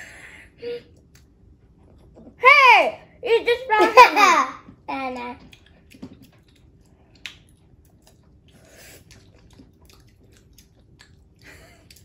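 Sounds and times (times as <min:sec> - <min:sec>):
wet chewing: 0:05.1 - 0:12.0.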